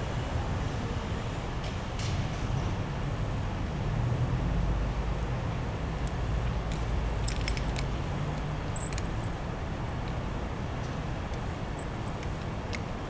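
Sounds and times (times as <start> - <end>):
low urban night rumble: 0.0 - 13.0.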